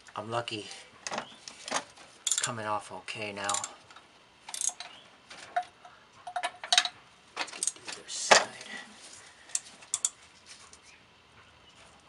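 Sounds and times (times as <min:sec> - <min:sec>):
ratchet wrench clicking: 0:02.2 - 0:02.5, 0:03.5 - 0:03.8, 0:04.5 - 0:04.9, 0:09.5 - 0:10.2.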